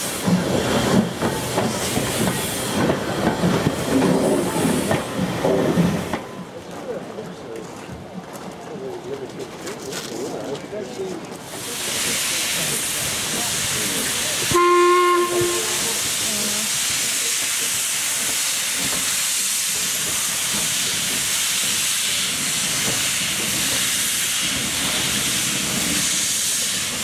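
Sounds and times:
steam hissing: 0.0s - 6.1s, 11.5s - 27.0s
steam whistle blast: 14.5s - 16.0s.

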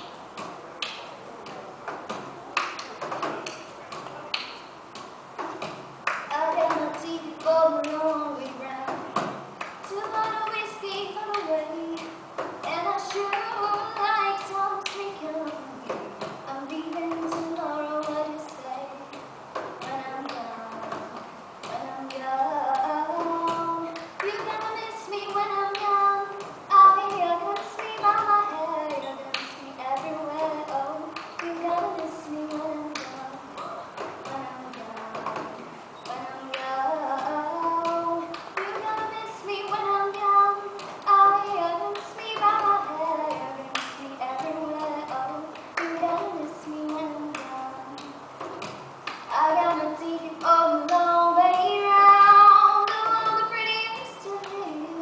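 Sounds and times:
hand claps: 0.0s - 10.6s, 22.8s - 35.7s, 36.5s - 46.3s, 46.9s - 51.8s
girl singing: 5.4s - 55.0s.

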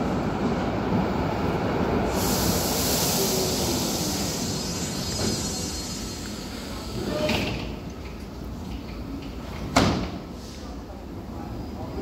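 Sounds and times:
train wheels rumbling: 0.0s - 10.4s
loud hiss: 2.1s - 7.5s.

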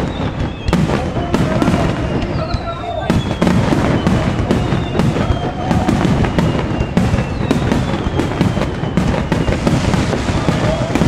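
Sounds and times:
fireworks bursting with booms: 0.0s - 11.0s
fireworks whistling down: 0.0s - 11.0s.

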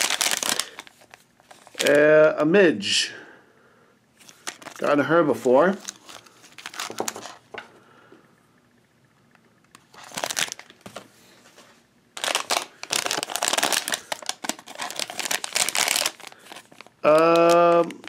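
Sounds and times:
foil packet crinkling and tearing: 0.0s - 2.0s, 4.2s - 7.4s, 9.9s - 11.0s, 12.2s - 18.0s.

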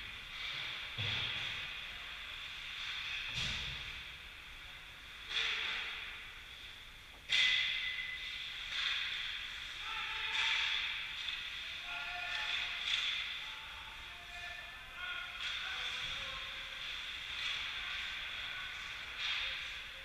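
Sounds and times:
faint distant shouts: 9.7s - 16.8s.

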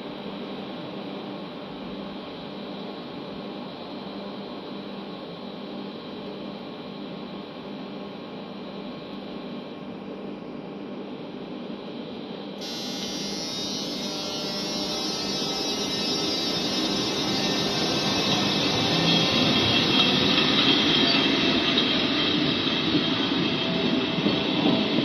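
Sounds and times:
electric railcar humming: 11.8s - 25.0s
high whine: 12.6s - 25.0s.

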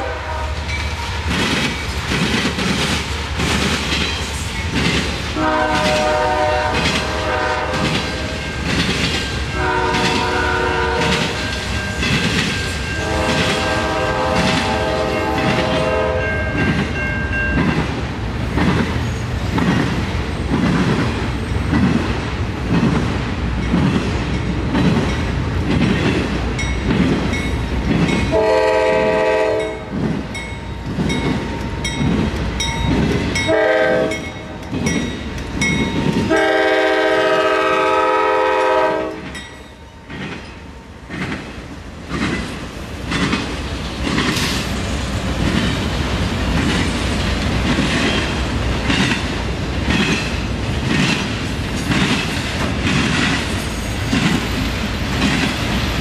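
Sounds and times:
locomotive horn: 0.0s - 0.7s, 5.4s - 8.4s, 9.5s - 11.4s, 12.9s - 16.5s, 28.3s - 29.9s, 33.4s - 34.4s, 36.3s - 39.3s
train wheels clacking: 0.6s - 56.0s.

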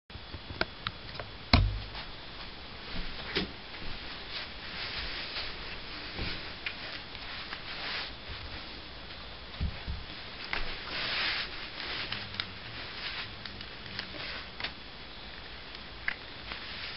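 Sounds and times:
steady hiss: 0.2s - 16.9s
loud thump: 1.6s - 2.0s.

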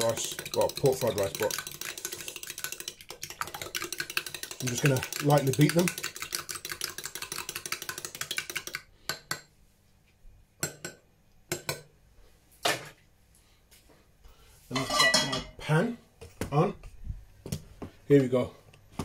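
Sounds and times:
whisk clicking on bowl: 0.0s - 8.9s.

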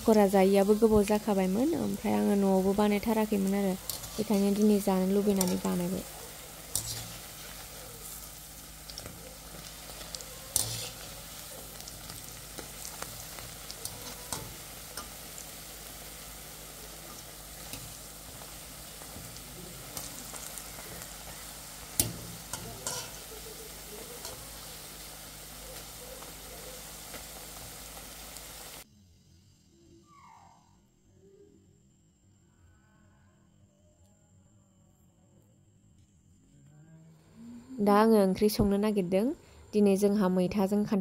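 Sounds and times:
food sizzling in hot oil: 0.0s - 28.8s.

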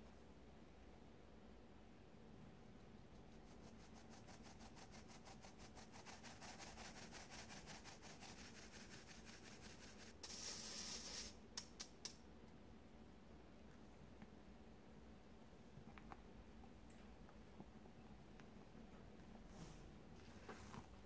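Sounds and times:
flour sifting through a sieve: 3.2s - 11.4s.

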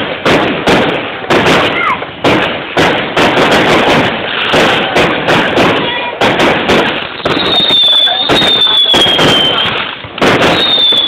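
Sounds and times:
firework bangs: 0.0s - 11.0s
firework crackling: 0.0s - 11.0s
firework whistle: 7.1s - 11.0s.

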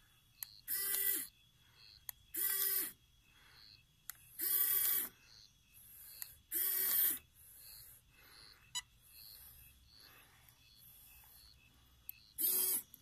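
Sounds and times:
small electric winch whirring: 0.4s - 1.4s, 2.3s - 3.0s, 4.3s - 5.2s, 5.8s - 8.0s, 12.0s - 13.0s
short hissing pulses: 0.7s - 13.0s.

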